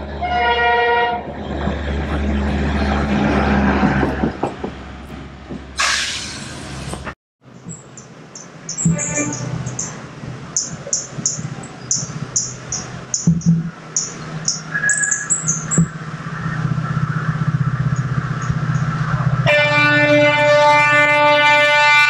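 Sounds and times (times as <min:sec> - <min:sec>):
train rumble: 0:00.0 - 0:22.0
train horn: 0:00.2 - 0:01.3, 0:08.9 - 0:09.7, 0:19.4 - 0:22.0
high bird chirps: 0:07.6 - 0:10.0, 0:10.6 - 0:16.6.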